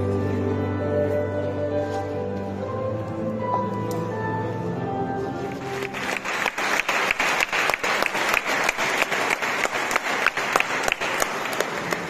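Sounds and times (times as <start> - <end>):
crowd applause: 5.6 - 12.0.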